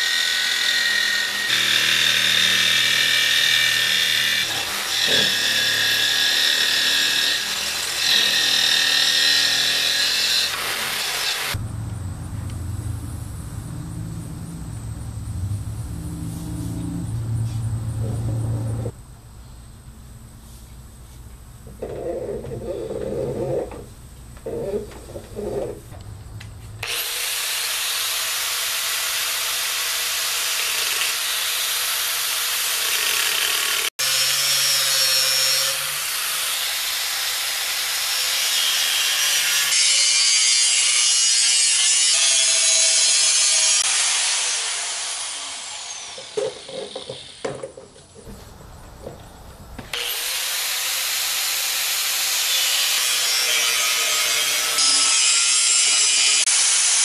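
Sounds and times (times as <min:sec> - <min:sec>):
angle grinder cutting steel: 0:00.0 - 0:12.6, 0:26.8 - 0:47.6, 0:49.9 - 0:57.0.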